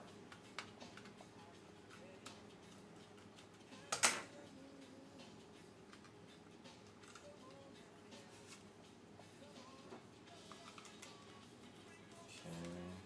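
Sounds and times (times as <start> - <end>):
small clicks and handling noise: 6.8 - 7.6.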